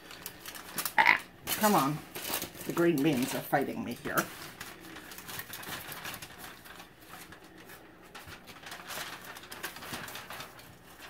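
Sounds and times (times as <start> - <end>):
foil crinkling and rustling: 0.0 - 11.0.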